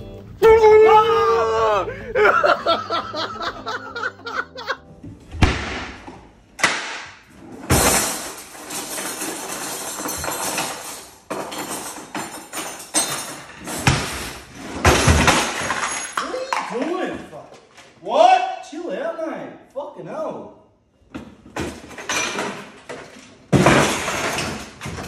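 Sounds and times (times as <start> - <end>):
utensils clattering in drawer: 7.6 - 16.9, 21.6 - 25.0.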